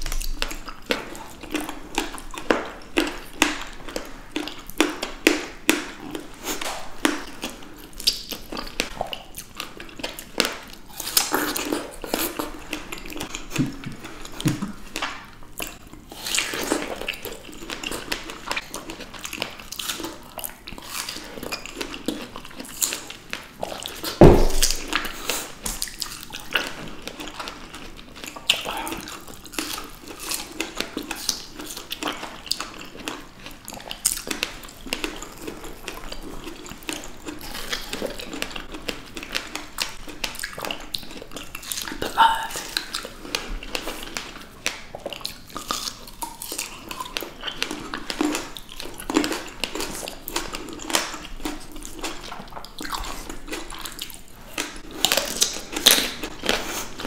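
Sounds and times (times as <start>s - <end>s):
strawberries being bitten and chewed: 0.0s - 57.0s
loud thump: 24.2s - 24.9s.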